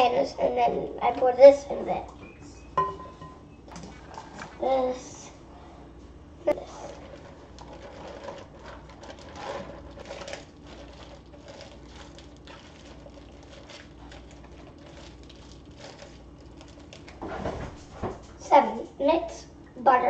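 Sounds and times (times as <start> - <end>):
plastic bag crinkling: 6.6 - 17.2.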